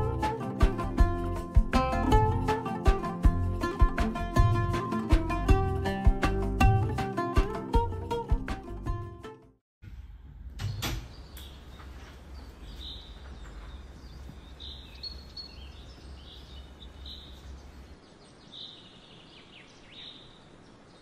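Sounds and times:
birds chirping outside: 10.6 - 21.0.

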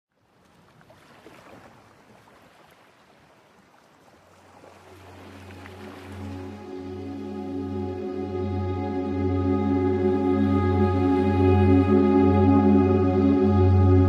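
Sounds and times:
music with low drone: 4.9 - 14.0.

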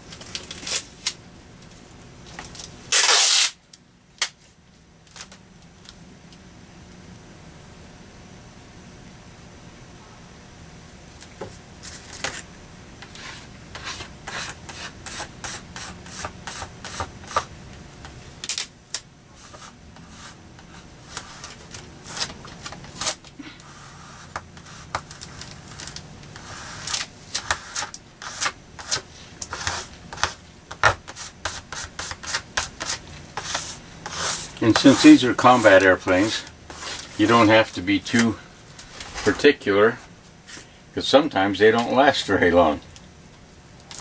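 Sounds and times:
plastic card scraping over tape: 2.6 - 3.6, 18.4 - 39.4.

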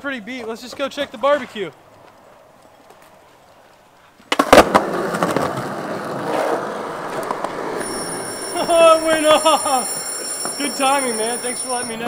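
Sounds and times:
skateboard wheels rolling on concrete: 0.0 - 12.0
skateboard clacking on concrete: 4.2 - 11.2.

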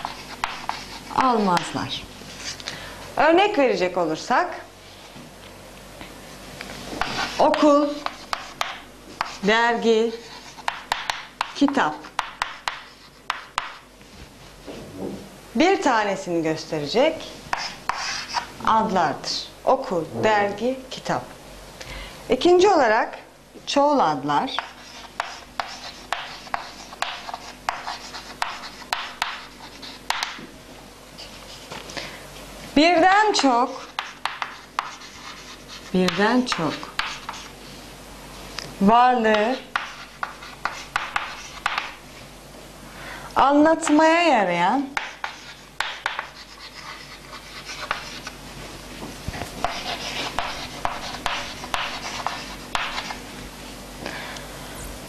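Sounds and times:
chalk tapping on board: 0.0 - 1.8, 7.0 - 9.4, 10.3 - 13.8, 17.5 - 18.5, 24.5 - 30.5, 33.8 - 37.5, 39.3 - 42.0, 45.0 - 48.3, 49.6 - 53.2
chalk scratching on chalkboard: 0.0 - 2.6, 7.0 - 9.5, 10.1 - 13.8, 17.5 - 18.5, 24.5 - 30.4, 33.6 - 37.6, 39.4 - 42.0, 45.0 - 48.4, 49.6 - 53.2.

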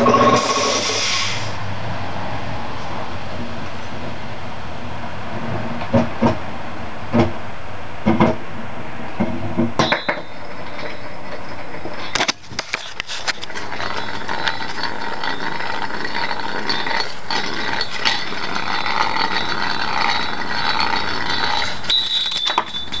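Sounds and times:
metal gear spinning on floor: 0.0 - 1.0, 9.8 - 23.0
compressed air blast: 0.3 - 1.6
metallic clinks: 13.7 - 23.0.

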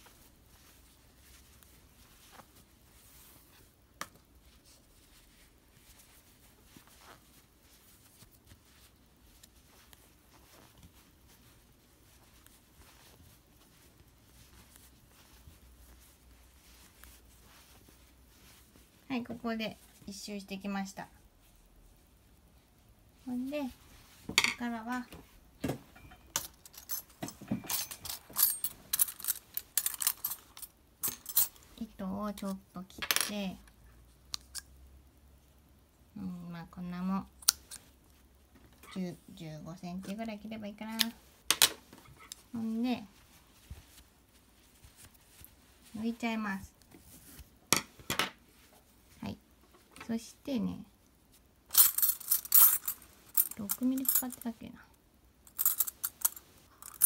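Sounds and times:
soft rustling of yarn: 0.0 - 27.5, 28.1 - 57.0
metal crochet tools clinking: 25.9 - 31.7, 51.7 - 54.5, 55.5 - 57.0.

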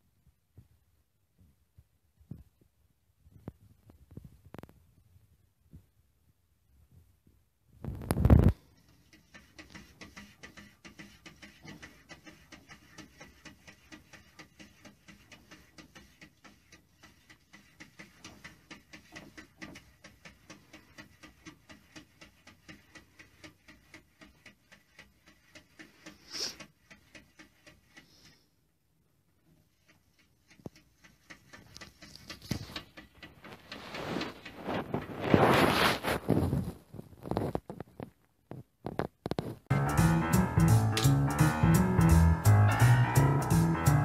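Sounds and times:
cat paws tapping on glass: 8.9 - 28.4, 29.7 - 35.1.

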